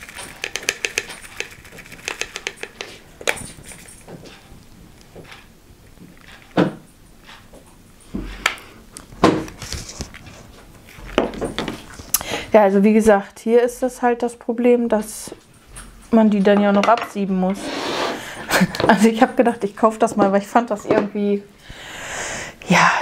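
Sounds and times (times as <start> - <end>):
strainer knocking against bowl and jar: 0.0 - 3.4
plastic beads rattling in metal strainer: 0.0 - 4.0.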